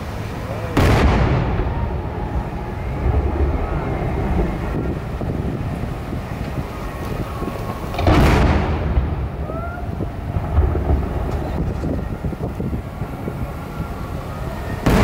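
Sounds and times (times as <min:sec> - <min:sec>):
fireworks rumble and booms: 0:00.0 - 0:15.0
rising firework whistle: 0:00.7 - 0:15.0
firework thump: 0:06.4 - 0:09.6.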